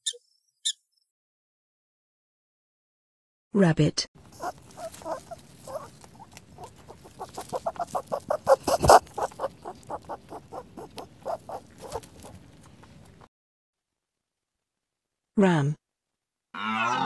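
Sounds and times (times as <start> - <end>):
rabbit squeaking: 0.0 - 0.8, 4.3 - 13.2.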